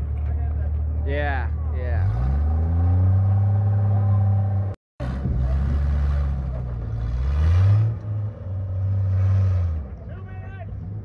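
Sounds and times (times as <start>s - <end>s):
engine revving: 1.3s - 10.1s.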